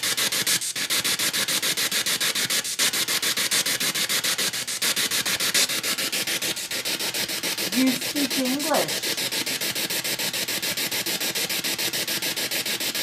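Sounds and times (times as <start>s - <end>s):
radio static in rapid bursts: 7.7s - 9.0s.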